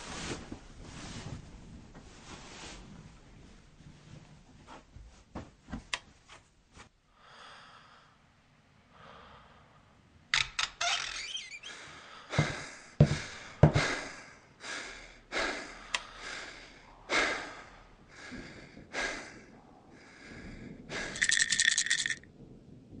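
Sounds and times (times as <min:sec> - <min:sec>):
panicked heavy breathing: 0:11.7 - 0:21.5.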